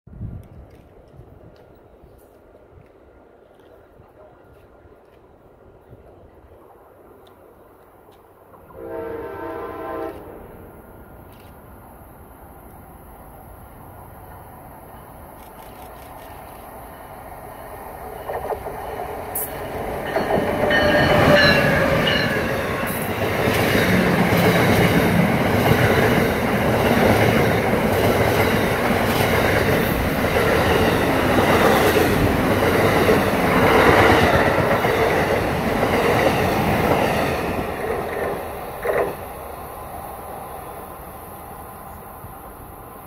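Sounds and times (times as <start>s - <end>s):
train wheels clattering on rail: 17.9s - 39.3s.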